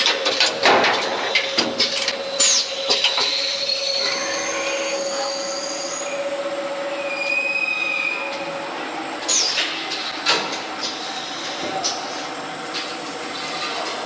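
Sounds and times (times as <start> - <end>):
lathe running with steady whine: 1.4 - 9.3
high-pitched cutting squeals: 2.2 - 8.5.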